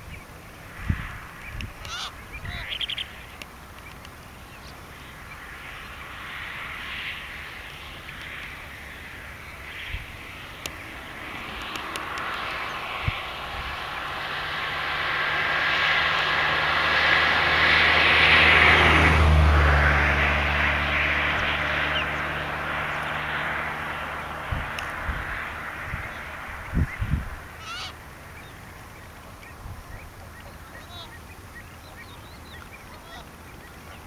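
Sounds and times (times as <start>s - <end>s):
airplane flying overhead: 0.0s - 34.0s.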